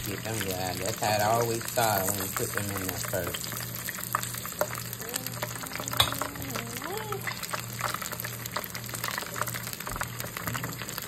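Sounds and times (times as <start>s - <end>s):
food deep-frying in oil: 0.0s - 11.0s.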